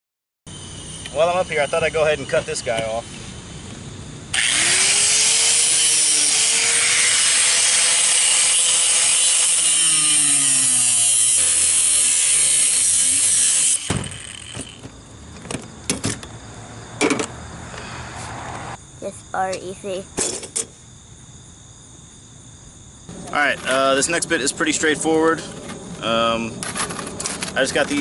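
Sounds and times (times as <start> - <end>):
angle grinder whining and cutting: 4.3 - 14.9.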